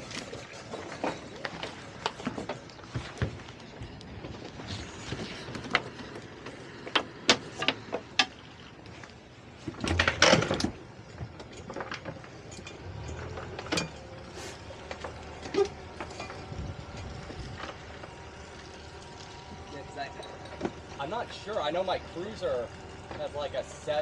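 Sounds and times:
gear knocking and clunking: 9.6 - 23.7.

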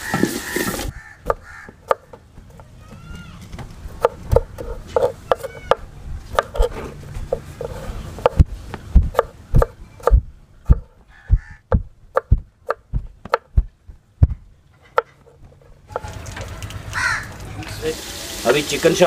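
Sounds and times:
knife chopping on wooden board: 7.3 - 14.4.

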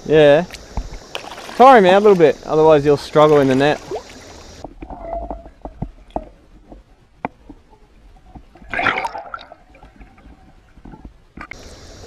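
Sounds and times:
underwater clicks and knocks: 4.6 - 7.6, 9.8 - 11.6.

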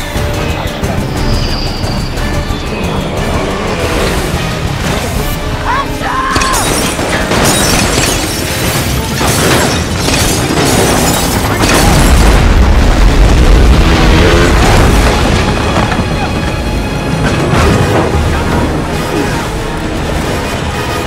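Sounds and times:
film score music: 0.0 - 21.0
booms and crashes: 9.0 - 16.4.

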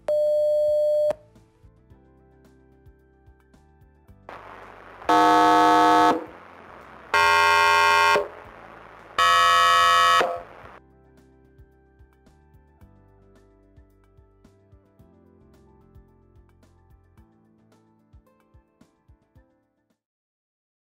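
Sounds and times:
soft background music: 0.0 - 20.0
loud test tones: 4.3 - 10.8.

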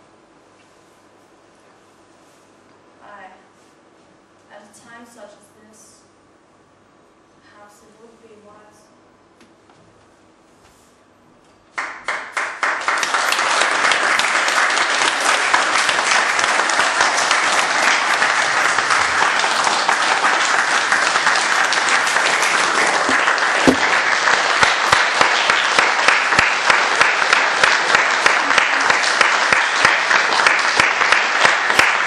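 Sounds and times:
audience applauding: 11.8 - 32.0.

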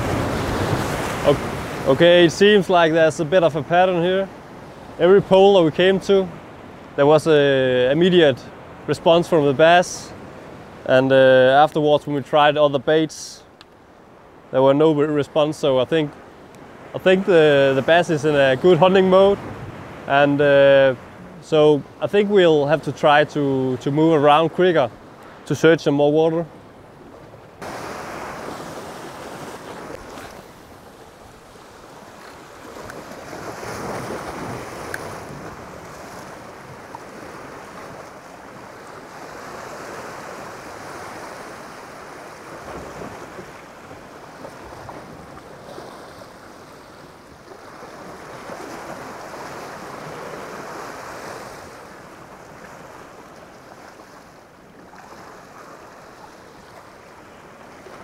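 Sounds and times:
surf breaking against rocks: 0.0 - 3.4, 27.6 - 30.8.

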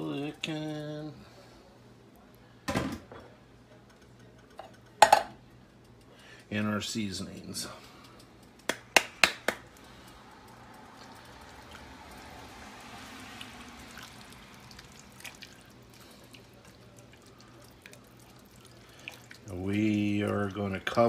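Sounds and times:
soft rushing hiss in pot: 9.6 - 21.0.

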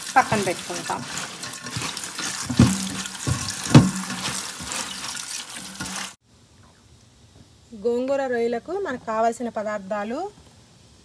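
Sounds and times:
hands rinsing leaves: 0.0 - 6.2
tap water running into steel bowl: 0.0 - 6.2
dull knocks: 2.5 - 4.4.

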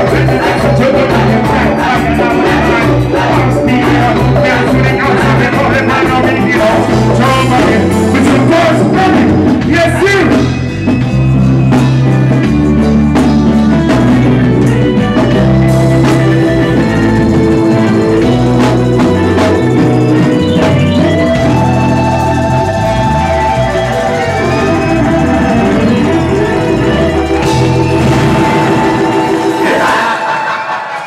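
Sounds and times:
person singing: 0.0 - 10.3, 24.3 - 31.0
live reggae band playing: 0.0 - 31.0.

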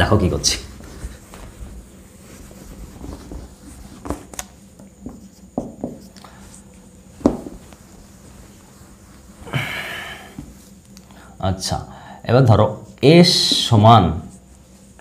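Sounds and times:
cloth rubbing whiteboard: 0.0 - 9.6.

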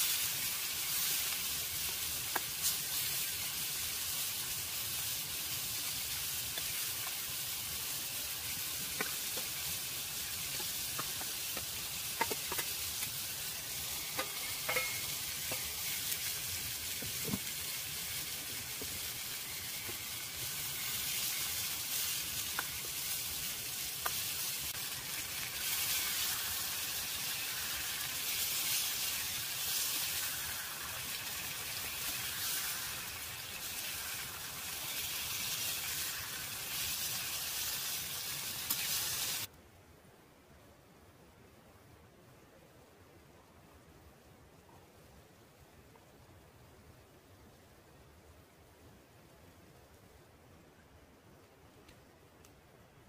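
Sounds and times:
vegetables sizzling in a pan: 0.0 - 39.5
spoon stirring in a pan: 14.1 - 15.9.

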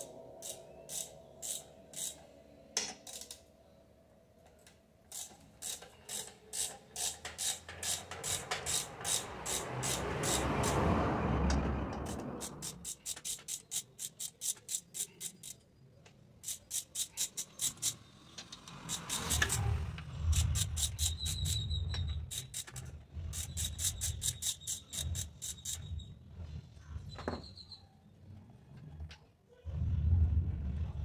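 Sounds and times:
ratchet wrench clicking: 0.0 - 2.2, 2.9 - 3.4, 5.1 - 10.9, 11.9 - 15.7, 16.4 - 26.0.

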